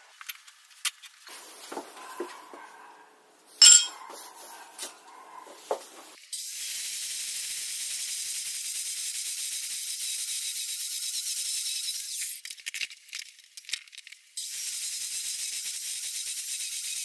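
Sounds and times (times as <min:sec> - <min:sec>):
steel plate clanking on workbench: 0:03.6 - 0:04.0.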